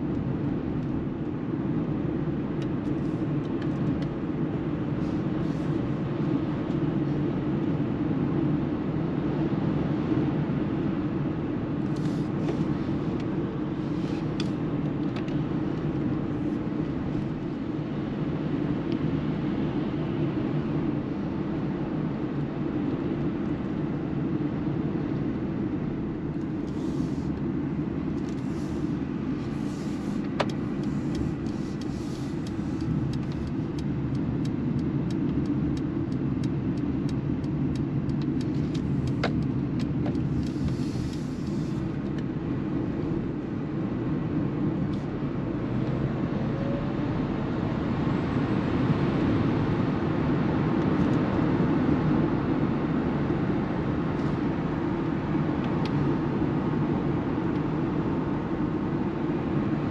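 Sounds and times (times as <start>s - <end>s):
tyre and road noise in car: 0.0s - 59.9s
turn signal ticking: 30.2s - 42.3s.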